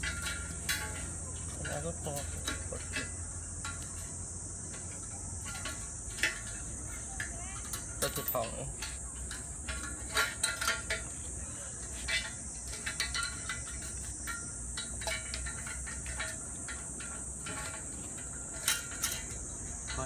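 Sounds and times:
metal fence hardware clinking: 0.0 - 20.0
steady high-pitched hiss: 0.0 - 20.0.

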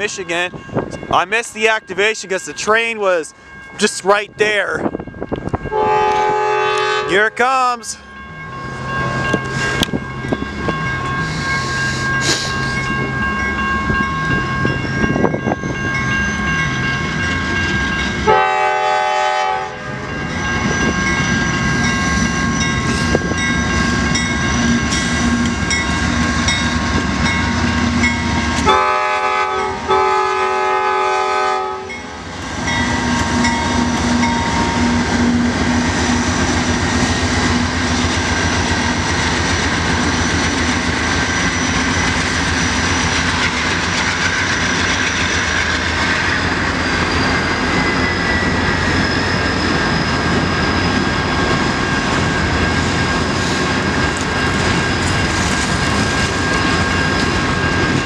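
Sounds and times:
crossing bell ringing: 0.0 - 58.0
diesel locomotive engine: 0.0 - 58.0
train wheels rumbling and clacking: 0.0 - 58.0
train horn blasts: 5.7 - 7.4, 18.2 - 20.1, 28.6 - 32.0.

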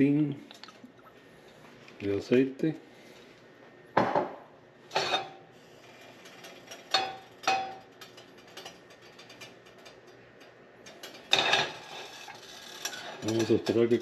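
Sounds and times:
pan ticking and scraping: 4.9 - 14.0
frying pan clanking on burner: 6.8 - 8.9
pan clatter: 10.9 - 13.8.

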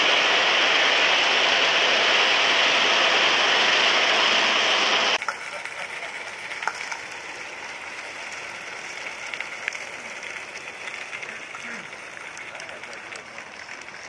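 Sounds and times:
loud steady hiss: 0.0 - 14.0
steam train clicks on track: 5.2 - 14.0.

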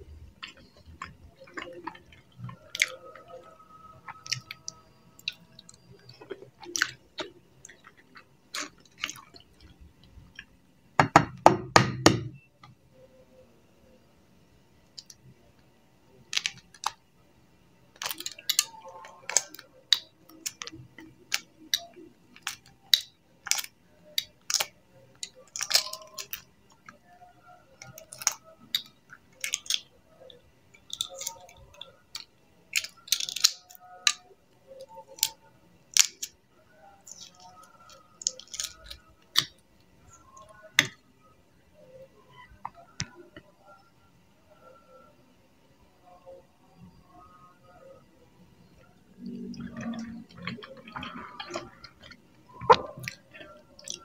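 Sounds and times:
eggshell cracking while peeled: 16.3 - 17.0, 18.0 - 27.0, 27.8 - 29.9, 30.8 - 36.4, 37.0 - 39.6.

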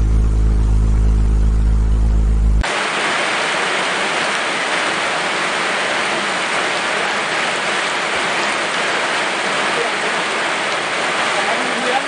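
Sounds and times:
rain falling on water: 2.6 - 12.0.

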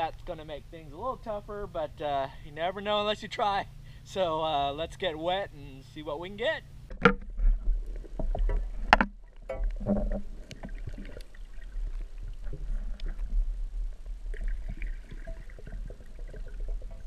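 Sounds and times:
muffled underwater rumble: 3.7 - 17.0.

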